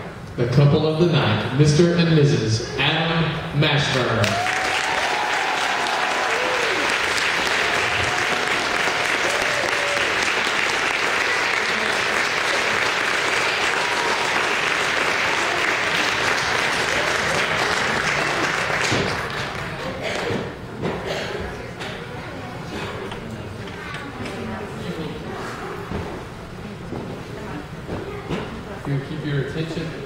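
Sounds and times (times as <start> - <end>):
crowd applauding: 3.9 - 20.5
voices cheering: 4.2 - 19.9.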